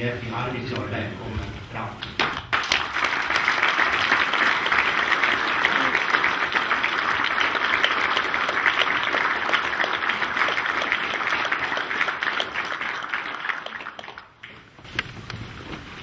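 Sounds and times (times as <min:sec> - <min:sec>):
audience applauding: 0:02.0 - 0:14.6.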